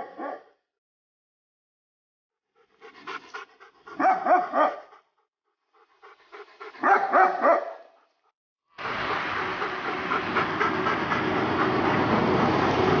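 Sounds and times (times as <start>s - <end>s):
dense rushing noise: 8.8s - 13.0s.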